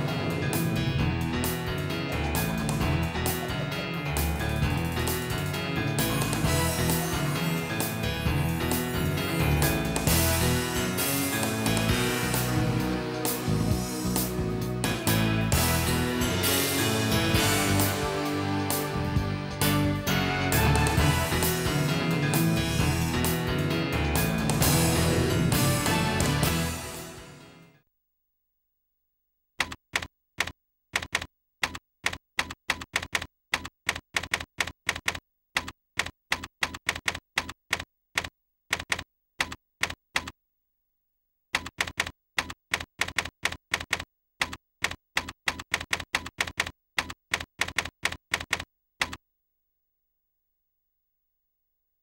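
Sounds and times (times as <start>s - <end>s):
typewriter key strikes: 29.6s - 40.3s, 41.6s - 49.2s.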